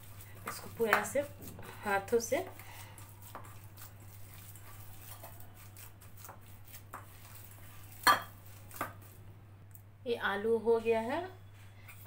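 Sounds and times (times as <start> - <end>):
potatoes squishing by hand: 0.0 - 9.2.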